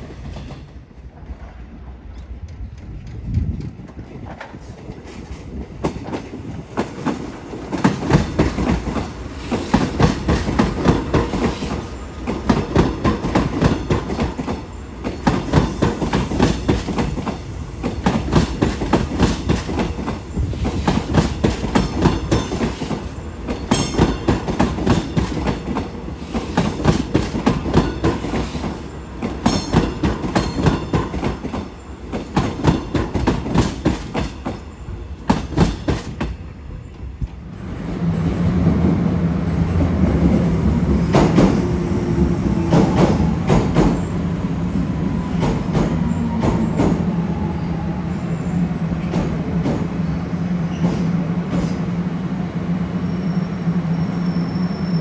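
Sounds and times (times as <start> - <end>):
train wheels clattering on rails: 0.0 - 51.9.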